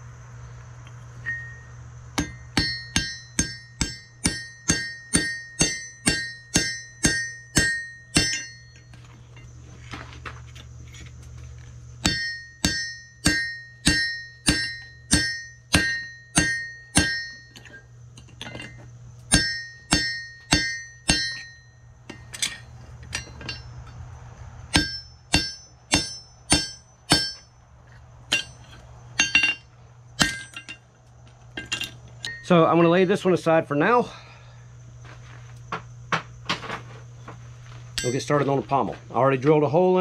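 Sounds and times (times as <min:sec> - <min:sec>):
steady low hum: 0:00.0 - 0:40.0
hammer striking anvil with ring: 0:01.2 - 0:09.5, 0:12.0 - 0:17.8, 0:18.4 - 0:24.0, 0:24.7 - 0:27.5, 0:28.3 - 0:30.8, 0:31.6 - 0:32.8, 0:38.0 - 0:38.3.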